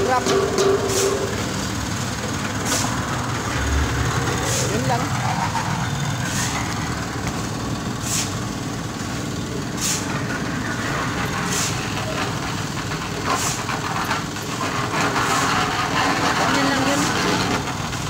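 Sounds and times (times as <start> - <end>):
road traffic with trucks: 0.0 - 18.0
short hissing swish: 8.0 - 8.4, 9.8 - 10.1.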